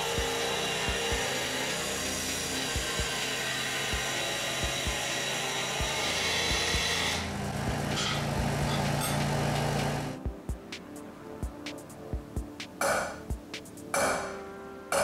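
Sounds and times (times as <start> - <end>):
scroll saw cutting metal: 0.0 - 10.0.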